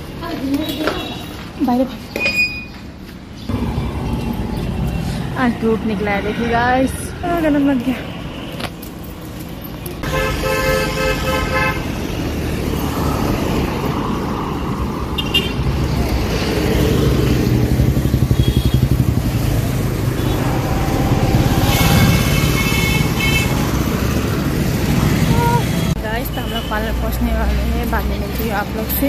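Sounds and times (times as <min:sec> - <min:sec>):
scooter and car engines: 0:02.9 - 0:29.0
vehicle horns honking: 0:10.0 - 0:12.0, 0:15.2 - 0:15.6, 0:18.2 - 0:19.1, 0:20.1 - 0:23.9.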